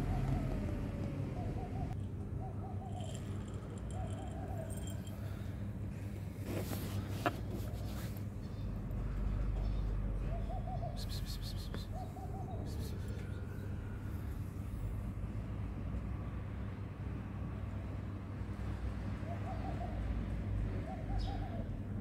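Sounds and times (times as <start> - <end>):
dove cooing: 0.0 - 5.4, 10.2 - 13.5, 19.2 - 21.8.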